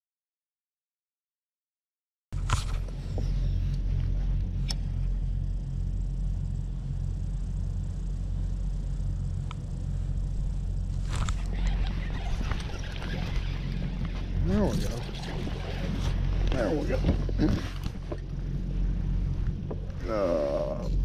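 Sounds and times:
fishing reel whirring: 7.0 - 17.0.

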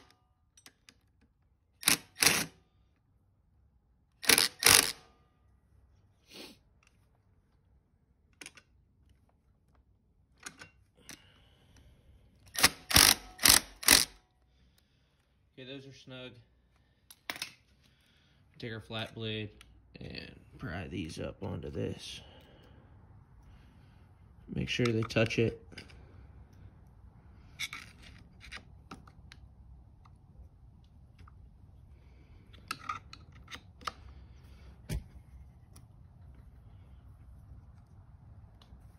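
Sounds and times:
screwdriver prying metal clicks: 12.5 - 14.1
power driver bursts: 12.5 - 14.2.

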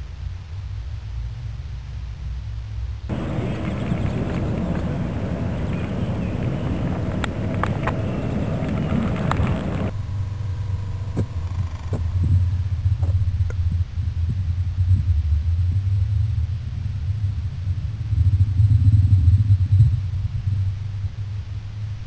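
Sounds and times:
muffled underwater rumble: 0.0 - 22.0
open-air rushing noise: 0.0 - 22.0
sharp clicks: 3.2 - 10.0.

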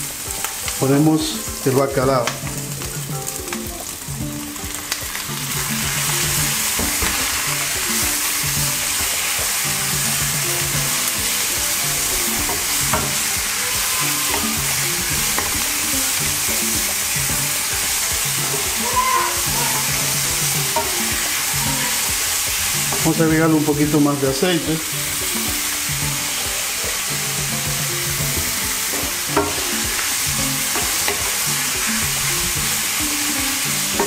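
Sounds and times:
food sizzling in a frying pan: 0.0 - 34.0
spatula clicking on pan: 5.9 - 23.2, 28.3 - 32.3.

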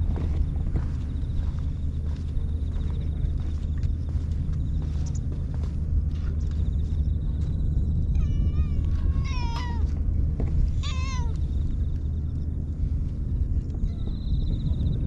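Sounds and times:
steady low rumble: 0.0 - 15.0
cat meowing: 8.1 - 9.9, 10.8 - 11.4.

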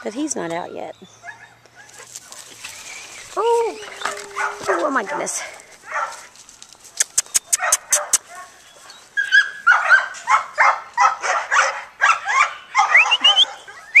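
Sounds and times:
dog barking: 4.0 - 6.3, 7.5 - 8.6, 9.3 - 13.9
sharp clicks: 7.0 - 8.2.

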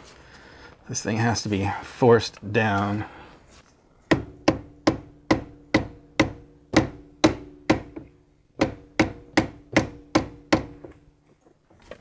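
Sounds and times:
hammer blows on steel: 4.1 - 10.8.

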